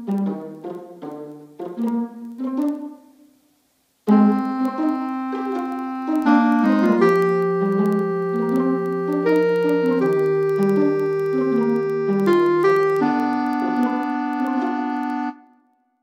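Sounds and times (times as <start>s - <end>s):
piano piece: 4.1s - 15.5s.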